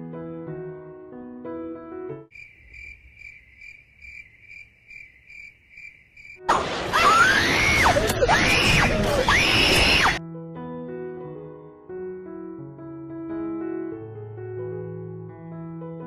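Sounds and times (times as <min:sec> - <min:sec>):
soft piano music: 0:00.0 - 0:02.3, 0:10.2 - 0:16.0
cricket chirping: 0:02.3 - 0:06.5
shrill cartoon screaming: 0:06.7 - 0:10.2.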